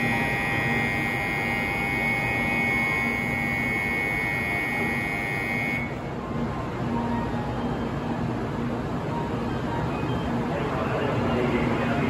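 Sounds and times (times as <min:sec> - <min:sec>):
platform departure bell ringing: 0:00.0 - 0:06.0.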